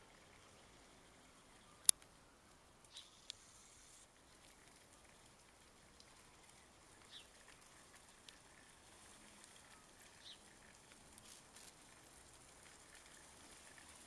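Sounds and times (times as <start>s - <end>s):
faint outdoor hiss: 0.0s - 14.0s
faint high chirps: 1.5s - 4.0s.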